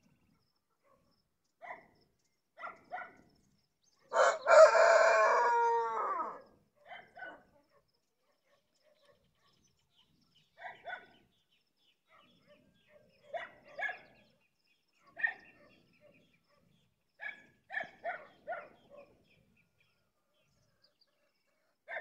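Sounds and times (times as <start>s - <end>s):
dog barking: 0.8s - 2.0s, 2.6s - 3.3s, 4.2s - 9.6s, 10.6s - 11.3s, 12.1s - 14.3s, 15.0s - 19.3s, 21.7s - 22.0s
faint bird chirps: 8.2s - 22.0s.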